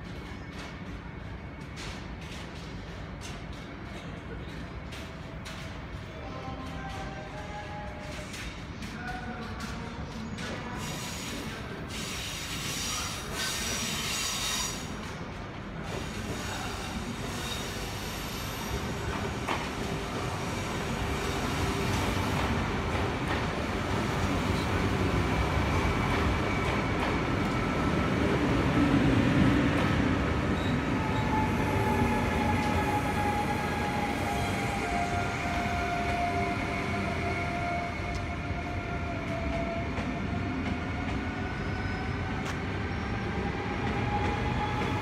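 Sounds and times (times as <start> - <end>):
electric train passing: 17.0 - 45.0.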